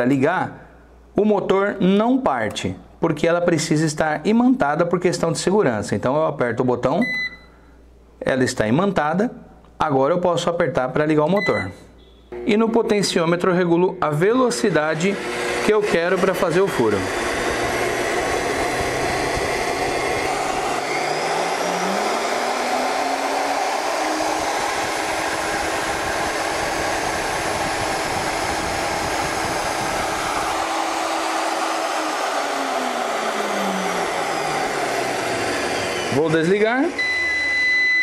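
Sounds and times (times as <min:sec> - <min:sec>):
drill motor whining: 0:14.6 - 0:38.0.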